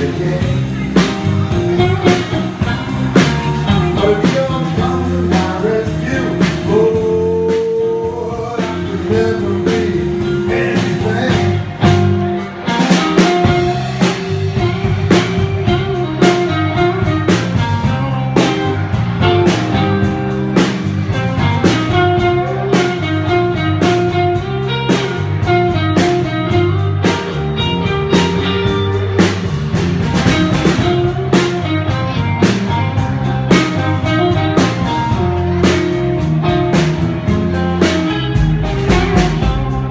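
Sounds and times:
bass and drums: 0:00.0 - 0:39.9
electric guitar solo: 0:11.2 - 0:39.9.

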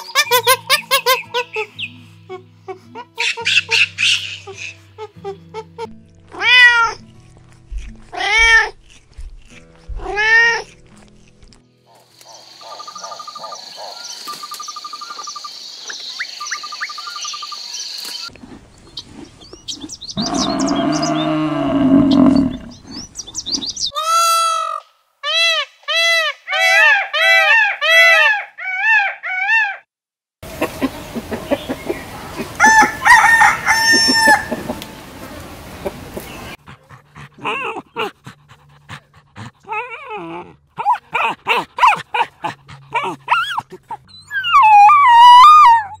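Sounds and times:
chickens clucking: 0:30.4 - 0:36.6
rooster crowing: 0:32.6 - 0:34.8
dog whining: 0:39.6 - 0:42.3, 0:42.9 - 0:46.0.

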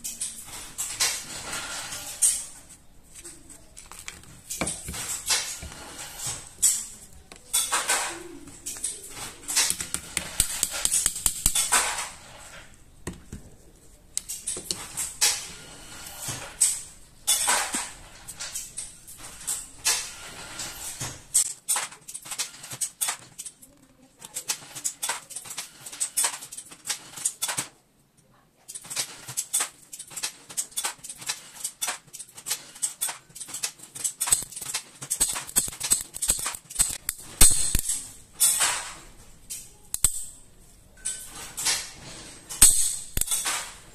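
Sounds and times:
metal pistol parts clicking: 0:28.8 - 0:38.8, 0:39.5 - 0:40.4, 0:42.6 - 0:43.8.

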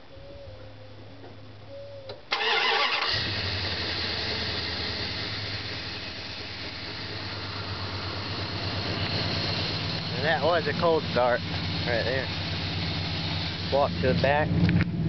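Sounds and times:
starter motor cranking: 0:02.3 - 0:04.6
engine idling: 0:02.3 - 0:15.0.

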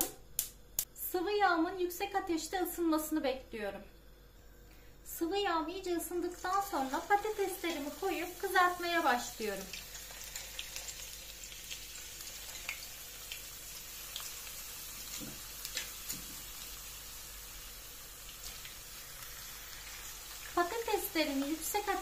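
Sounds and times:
potatoes sizzling in oil: 0:05.8 - 0:22.0.

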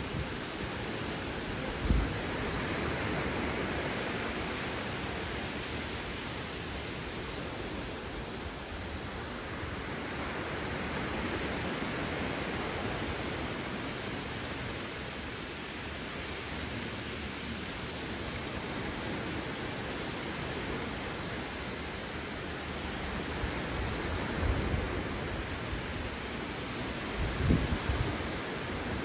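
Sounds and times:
waves breaking on beach: 0:00.0 - 0:29.0.

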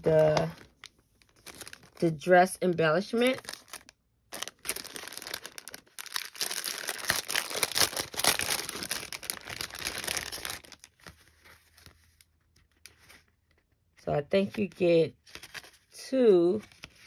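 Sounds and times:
plastic packaging crinkling: 0:00.0 - 0:13.2.

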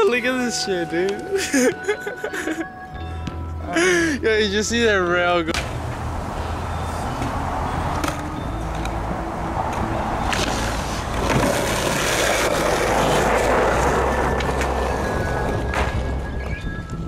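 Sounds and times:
skateboard wheels rolling on concrete: 0:04.6 - 0:17.0
skateboard clacking: 0:09.7 - 0:16.3.

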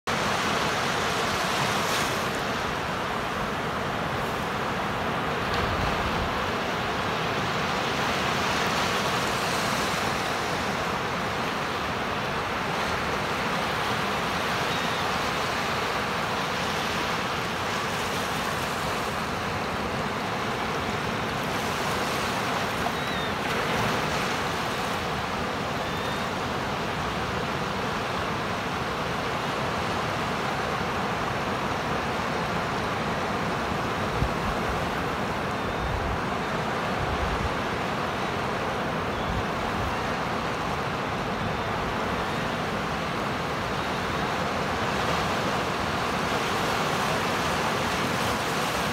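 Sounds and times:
waves breaking on a beach: 0:00.1 - 0:48.9.

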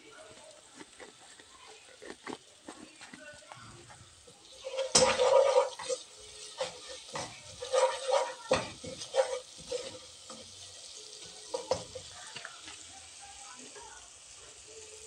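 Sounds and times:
sauce sizzling: 0:00.0 - 0:15.0
spoon scraping a pan: 0:03.8 - 0:12.9.

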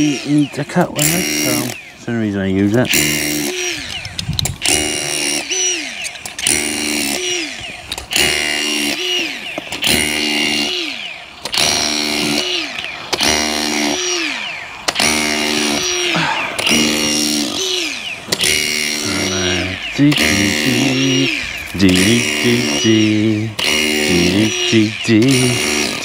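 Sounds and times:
cable cutter rasping strokes: 0:00.0 - 0:01.9, 0:02.7 - 0:26.0.

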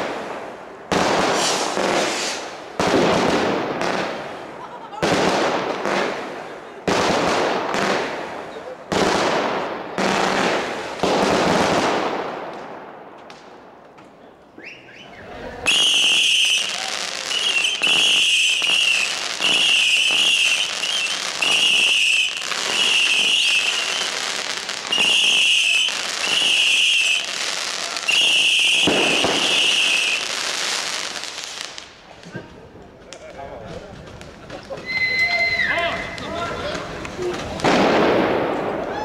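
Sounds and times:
fireworks whistling shots: 0:00.0 - 0:04.4, 0:14.6 - 0:31.9, 0:34.7 - 0:36.3
fireworks bangs and crackle: 0:00.0 - 0:14.2, 0:15.6 - 0:39.0.

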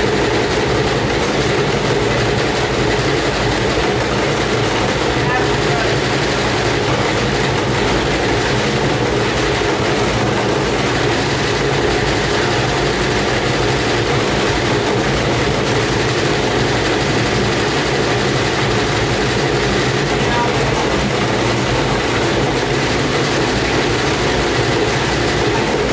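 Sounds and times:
washing machine rumbling: 0:00.0 - 0:25.9.

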